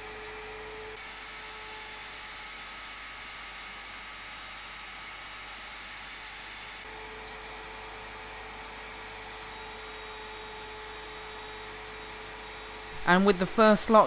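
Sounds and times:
router motor whine: 6.8s - 13.4s.

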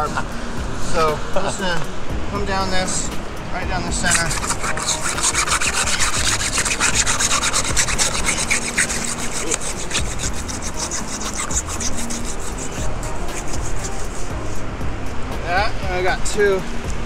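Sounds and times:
hacksaw rasping strokes: 4.0s - 14.6s.

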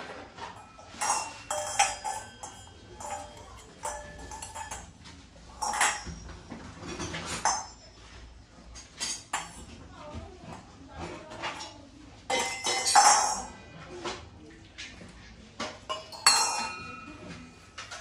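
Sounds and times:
brass utensils clinking: 0.0s - 7.9s, 12.3s - 13.5s, 15.9s - 18.0s.

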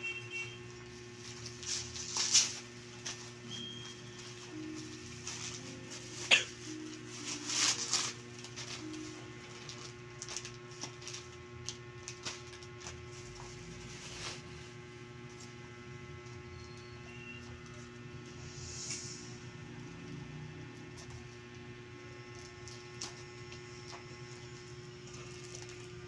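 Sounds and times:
steady low hum: 0.0s - 26.0s
plastic packaging crinkling: 0.7s - 14.5s, 22.2s - 26.0s.

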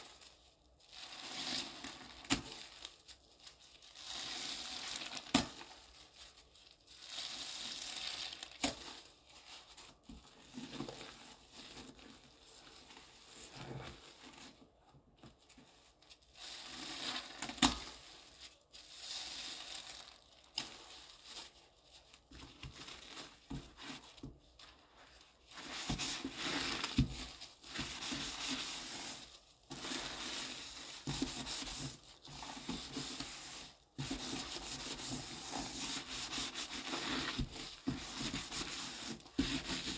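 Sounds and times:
sponge squishing through foamy paste: 15.7s - 39.9s.

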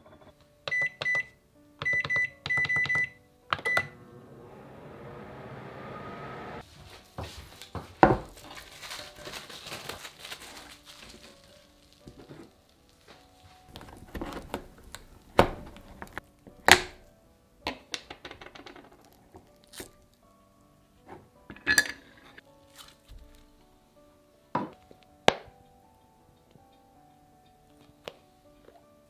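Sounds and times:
rustling: 6.6s - 16.2s.

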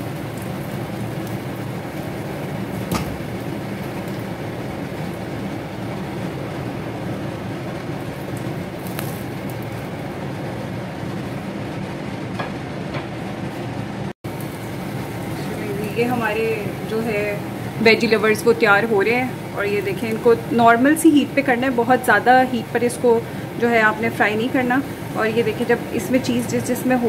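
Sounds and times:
food sizzling in a pan: 8.1s - 10.0s, 14.3s - 27.0s.

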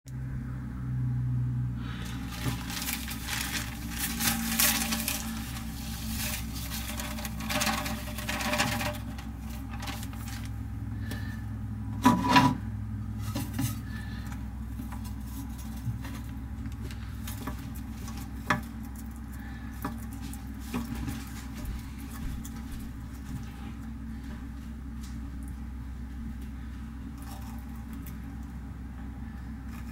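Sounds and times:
steady low hum: 0.1s - 29.9s
roaches scrabbling in a dish: 2.0s - 10.6s.

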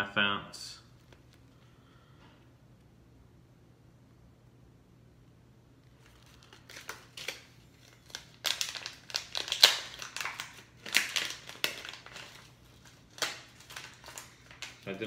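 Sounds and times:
plastic package crinkling: 5.8s - 15.0s.

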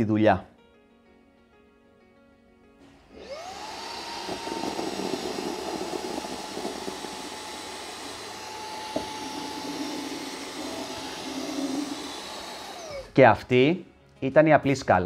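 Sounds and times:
handheld vacuum whining: 3.0s - 13.2s.

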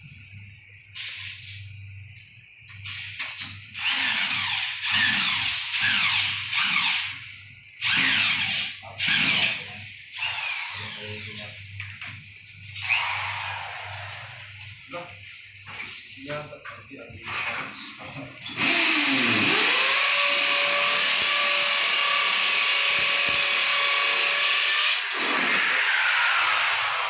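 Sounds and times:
electric drill boring into wall: 3.7s - 7.2s, 7.8s - 11.5s, 12.8s - 14.6s, 17.2s - 27.0s.

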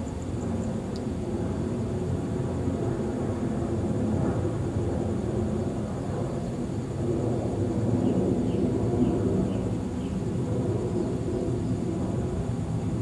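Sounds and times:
low outdoor rumble: 0.0s - 13.0s
light tick: 0.9s - 1.1s.

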